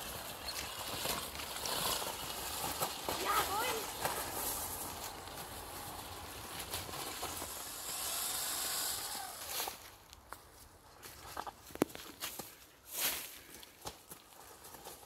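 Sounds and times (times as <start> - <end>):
tyres on leaves and dirt: 0.0 - 15.0
faint electric motor whine: 6.7 - 9.9.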